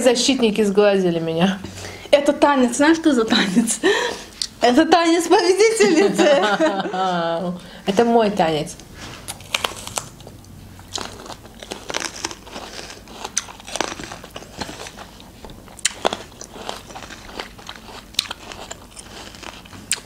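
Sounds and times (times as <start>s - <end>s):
people crunching unripe plums: 9.2s - 20.0s.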